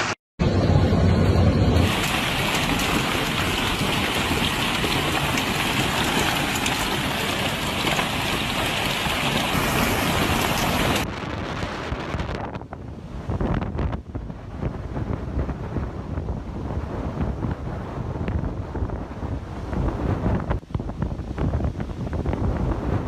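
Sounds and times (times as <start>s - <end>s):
wind noise: 0.0s - 23.0s
hail striking ground and cars: 1.8s - 11.0s.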